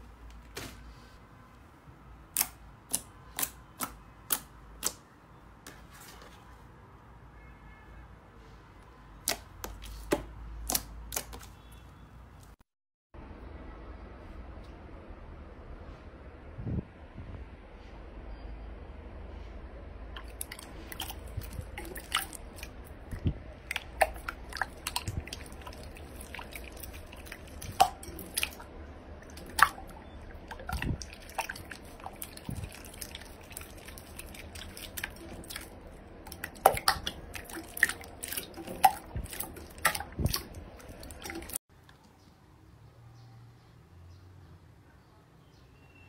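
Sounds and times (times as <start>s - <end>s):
slime squelching and popping: 2.3s - 5.0s, 9.2s - 11.8s, 20.2s - 41.6s.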